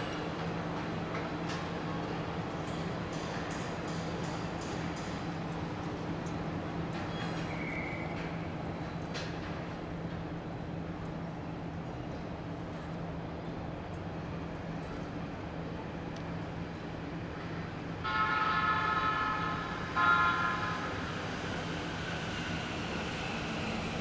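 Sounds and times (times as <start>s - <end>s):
low hum of city traffic: 0.0s - 24.0s
train horn blasts: 18.0s - 21.1s.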